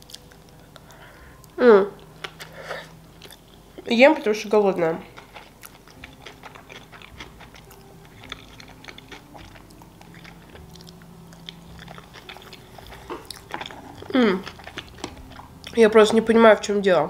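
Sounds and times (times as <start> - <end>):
chewing with wet mouth clicks: 0.0 - 2.6, 5.1 - 15.8.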